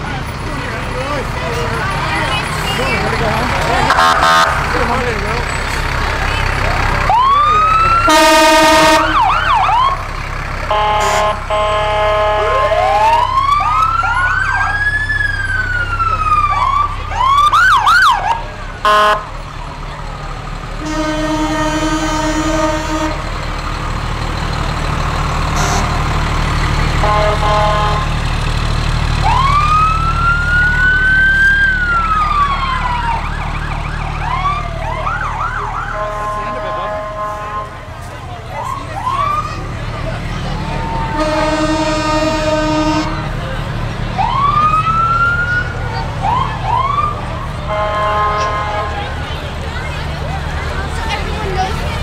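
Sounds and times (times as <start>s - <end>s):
sirens wailing and yelping: 0.0s - 28.1s, 28.9s - 52.0s
low engine rumble: 0.0s - 52.0s
long horn blasts: 3.6s - 6.0s, 8.0s - 9.6s, 10.7s - 13.2s, 18.8s - 19.3s, 20.8s - 23.3s, 25.5s - 26.1s, 26.9s - 28.2s, 35.8s - 38.1s, 40.9s - 43.4s, 47.6s - 49.3s.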